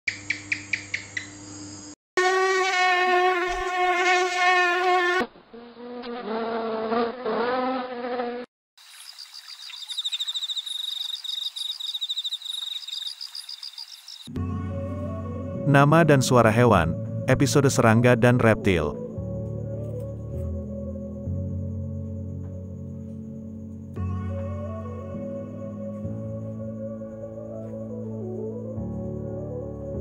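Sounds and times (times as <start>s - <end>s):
gecko chirping clicks: 0.1s - 1.4s, 9.1s - 14.3s
high insect chirping: 0.1s - 2.0s, 8.8s - 14.3s, 18.9s - 30.0s
fly wings buzzing: 2.2s - 14.3s.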